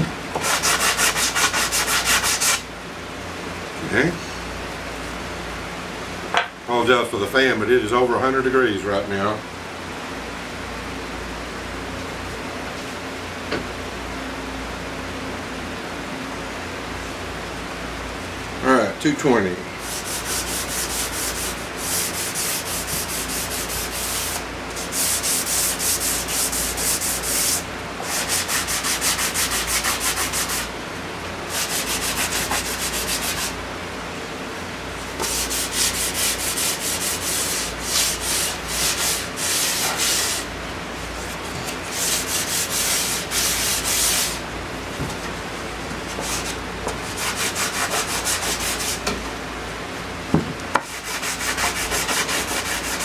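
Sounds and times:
sandpaper rubbing on wood: 0:00.4 - 0:02.6, 0:19.8 - 0:30.7, 0:31.5 - 0:33.6, 0:35.2 - 0:40.5, 0:41.2 - 0:44.4, 0:46.1 - 0:49.0, 0:50.9 - 0:53.0.

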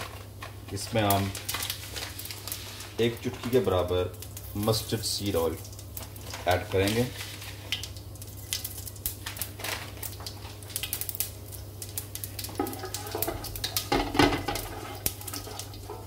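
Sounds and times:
seeds sizzling in hot oil: 0:00.0 - 0:16.0
spatula scraping metal pot: 0:12.6 - 0:16.0.

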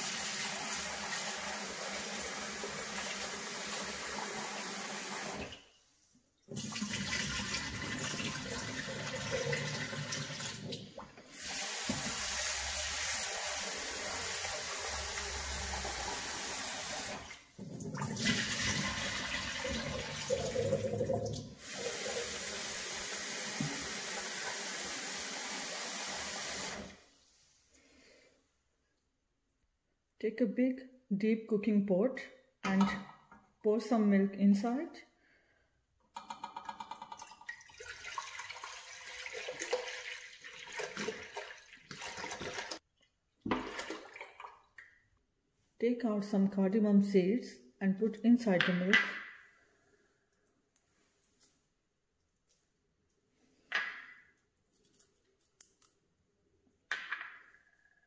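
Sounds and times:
tap water running into bowl: 0:11.8 - 0:25.4, 0:36.2 - 0:42.8.

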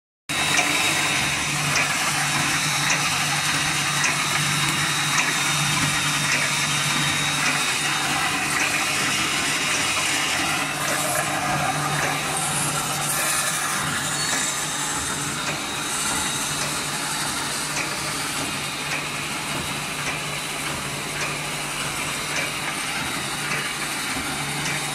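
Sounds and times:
welding machine hum and hiss: 0:00.3 - 0:24.9.

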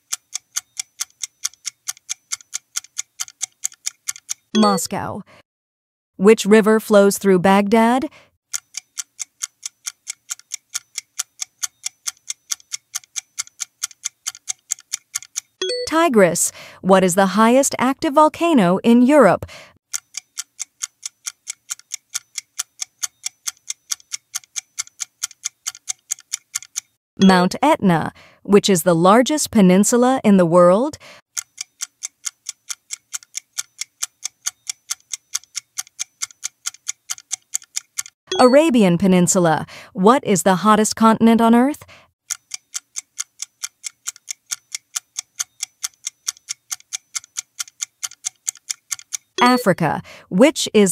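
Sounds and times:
rapid clock ticks: 0:00.0 - 0:04.6, 0:08.5 - 0:16.6, 0:19.4 - 0:27.5, 0:31.0 - 0:38.6, 0:41.9 - 0:50.2
countdown timer ticking: 0:04.6 - 0:05.1, 0:15.6 - 0:16.3, 0:27.2 - 0:28.1, 0:38.3 - 0:39.0, 0:49.3 - 0:50.2.

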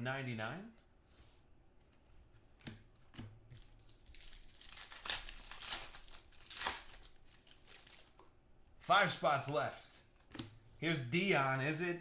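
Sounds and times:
foil wrapper crinkling and tearing: 0:03.6 - 0:08.3.

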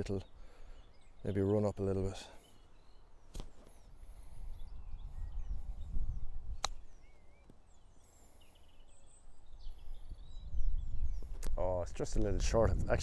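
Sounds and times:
small birds chirping: 0:00.0 - 0:13.0
sharp click: 0:03.3 - 0:03.6, 0:06.6 - 0:06.8
wind on microphone: 0:04.2 - 0:07.1, 0:09.0 - 0:13.0.

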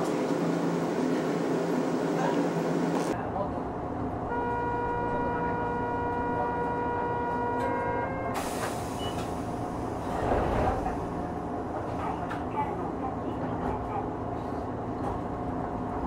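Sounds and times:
low rumble: 0:09.6 - 0:11.9.

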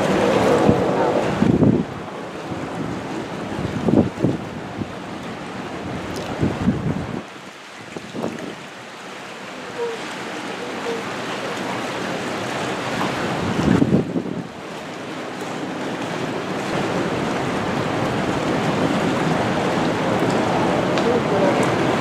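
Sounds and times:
wind buffeting microphone: 0:00.0 - 0:08.7, 0:12.2 - 0:14.8
open sea rushing: 0:00.0 - 0:22.0.

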